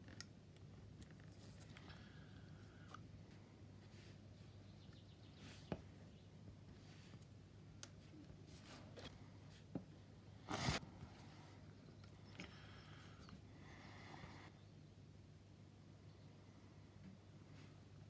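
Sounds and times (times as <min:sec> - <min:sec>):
faint low hum: 0:00.0 - 0:18.0
knife scratch on paper: 0:10.5 - 0:10.8.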